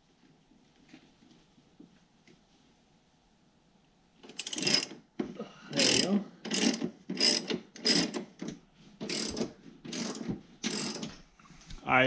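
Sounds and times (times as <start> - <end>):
ratchet wrench clicking: 4.3 - 4.9, 5.8 - 8.2, 9.1 - 11.0.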